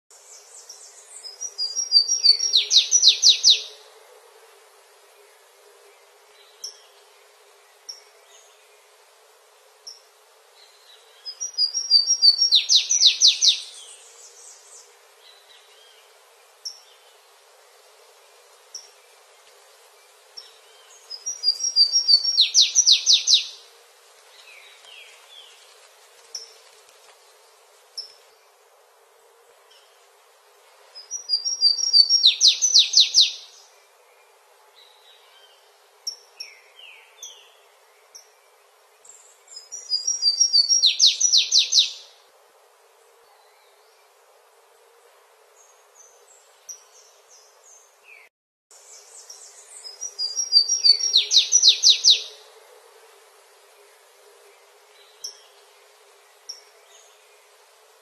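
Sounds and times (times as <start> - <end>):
songbird trilling song: 0.3 - 3.8, 10.8 - 16.0, 20.4 - 23.6, 31.0 - 33.6, 39.0 - 42.1, 48.9 - 52.4.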